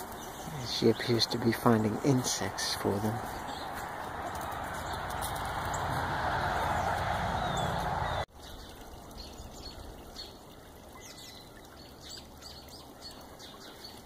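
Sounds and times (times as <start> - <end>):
small birds chirping faintly: 0.0 - 6.0.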